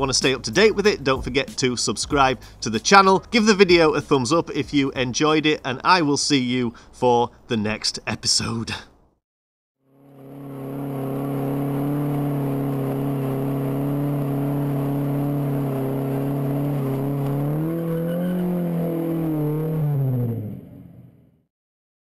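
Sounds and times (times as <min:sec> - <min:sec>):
car engine revving high: 0:09.9 - 0:21.2.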